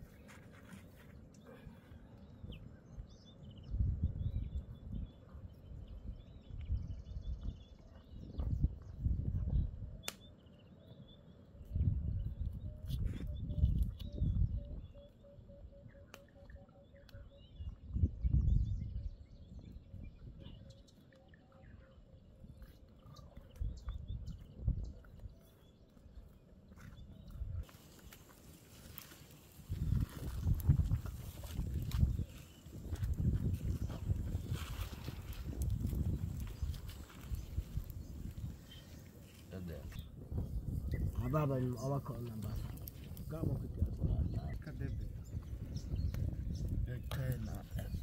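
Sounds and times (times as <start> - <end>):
birds chirping: 0.0 - 48.0
wind buffeting microphone: 2.3 - 10.1, 11.6 - 16.0, 17.2 - 20.9, 22.2 - 48.0.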